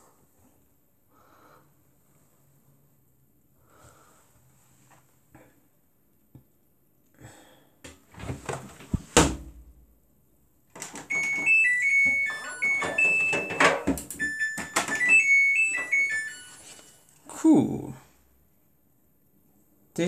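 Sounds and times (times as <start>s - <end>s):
washing machine beeping melody: 10.8s - 16.9s.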